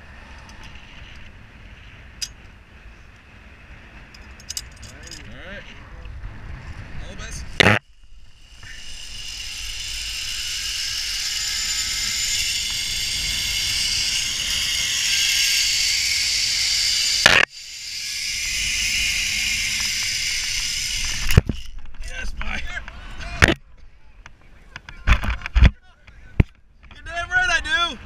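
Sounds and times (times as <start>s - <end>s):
zip line trolley click: 7.6s - 22.5s
zip line pulleys hissing: 7.8s - 21.8s.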